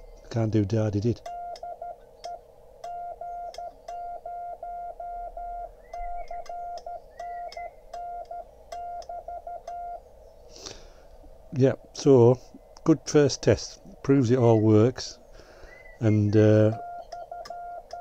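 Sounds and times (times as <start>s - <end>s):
morse code beeps: 1.3s - 10.0s, 16.6s - 18.0s.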